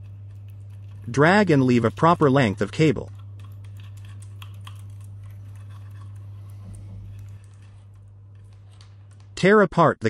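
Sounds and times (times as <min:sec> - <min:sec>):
steady low hum: 0:00.0 - 0:10.0
faint clicks and ticks of cable: 0:03.0 - 0:09.4.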